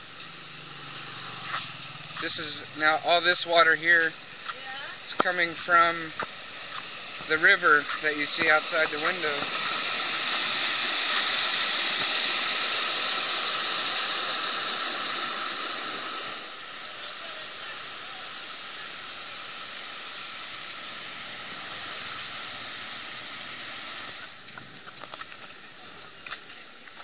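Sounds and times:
water rushing over a drain grate: 0.0 - 27.0.

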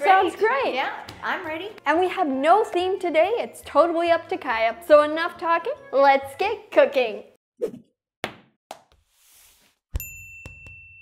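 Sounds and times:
bright bell-like ding: 10.0 - 11.0.

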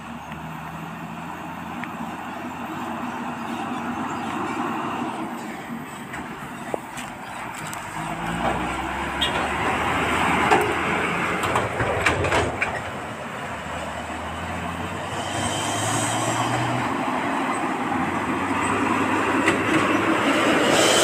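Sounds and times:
diesel trucks driving past: 0.0 - 21.0
truck bodies clanking: 5.3 - 20.7.

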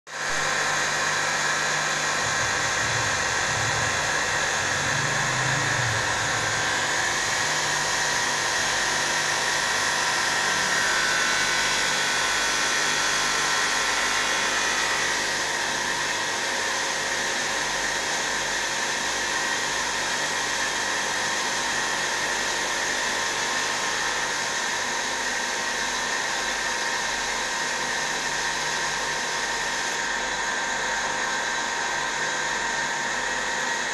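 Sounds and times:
high machine whine: 0.1 - 33.9
glass edging machine whirring: 0.3 - 15.7.

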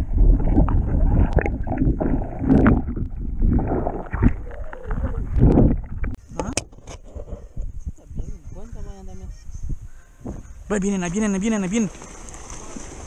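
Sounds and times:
underwater water sloshing and gurgling: 0.0 - 6.2.

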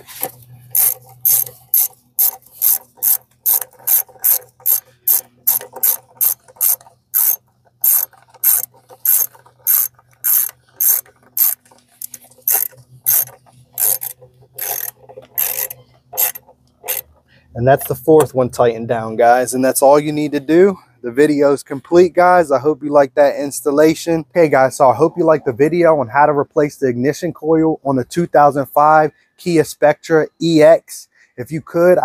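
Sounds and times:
socket ratchet clicking: 0.7 - 17.2.

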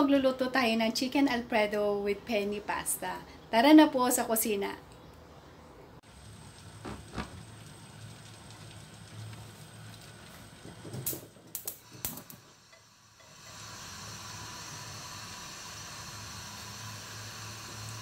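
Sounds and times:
gas flame hissing: 6.0 - 18.0.

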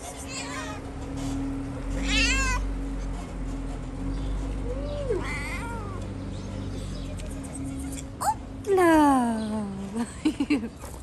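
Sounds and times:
cat meowing: 0.3 - 0.8, 2.0 - 2.6, 4.8 - 6.0.

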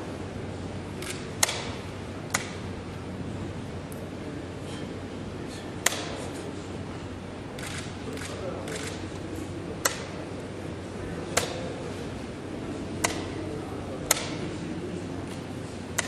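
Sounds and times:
murmur of voices: 0.0 - 16.0.

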